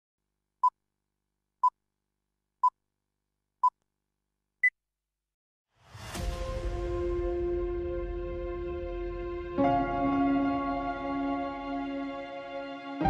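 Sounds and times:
rising swell into crash: 5.8 - 10.3
intro music: 6.0 - 13.0.

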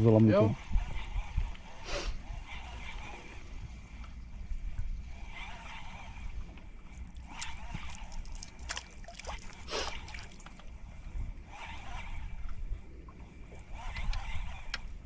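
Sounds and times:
water splashing around boat: 2.5 - 15.0
short splashes: 7.2 - 10.5.

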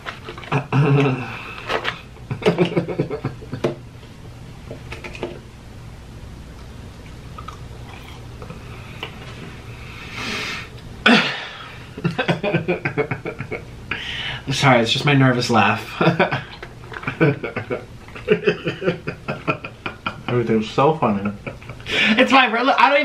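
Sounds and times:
steady low hum: 0.0 - 23.0
man laughing nervously: 2.3 - 3.7, 11.1 - 14.2, 16.0 - 20.4.

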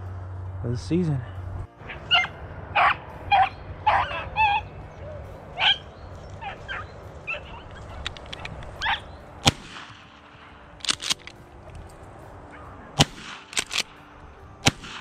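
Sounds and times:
dogs baying: 1.8 - 9.4, 11.8 - 13.0
loud shotgun shot: 9.4 - 11.3, 13.0 - 14.0, 14.6 - 15.0.

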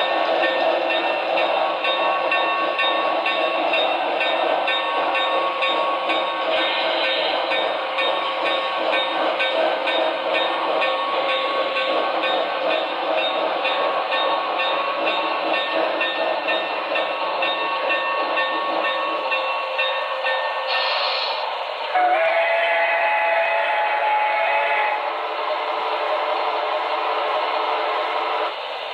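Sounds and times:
model train running on track: 0.0 - 28.9
hiss: 20.6 - 21.9.

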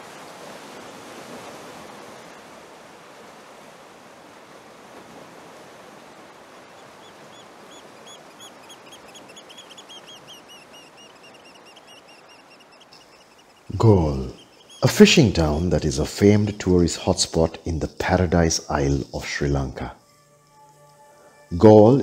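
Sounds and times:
sea surf washing: 0.0 - 19.8
bird chirping: 6.8 - 16.2.

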